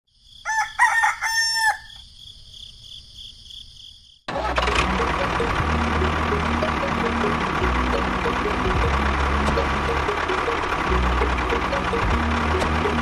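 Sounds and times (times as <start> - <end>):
rooster crowing: 0.3 - 2.0
toy tractor motor running: 4.3 - 13.0.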